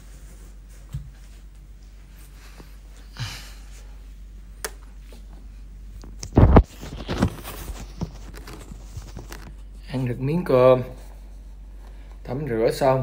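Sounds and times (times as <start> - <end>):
rustling: 6.1 - 9.9.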